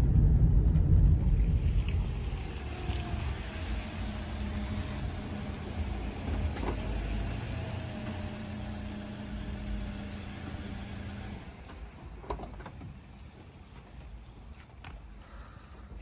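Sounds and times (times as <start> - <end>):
car engine idling: 0.0 - 12.6.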